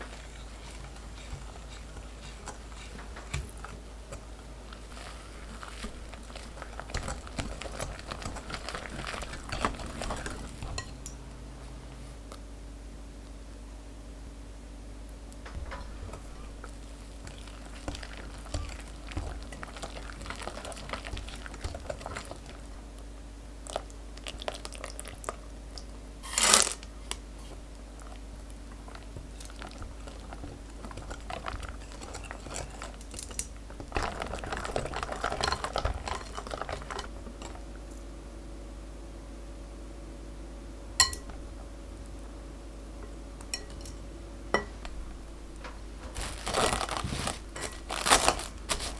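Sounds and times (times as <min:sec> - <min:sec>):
whisk stirring batter in glass bowl: 0:00.0 - 0:11.0, 0:17.2 - 0:22.8, 0:29.2 - 0:37.6.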